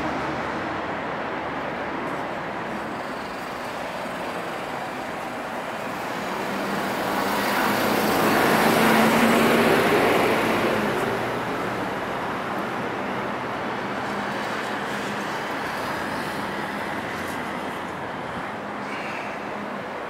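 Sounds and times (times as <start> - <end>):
traffic noise: 0.0 - 20.0
loud vehicle passing: 6.0 - 12.1.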